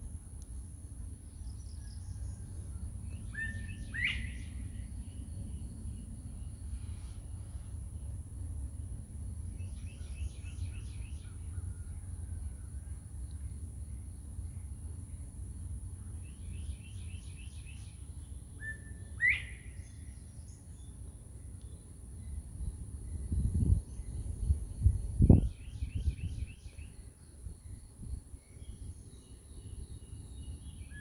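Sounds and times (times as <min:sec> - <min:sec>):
wind rumbling on microphone: 0:00.0 - 0:21.5, 0:22.2 - 0:31.0
sharp rising bird whistle: 0:03.1 - 0:04.9, 0:18.6 - 0:20.2, 0:25.2 - 0:27.0.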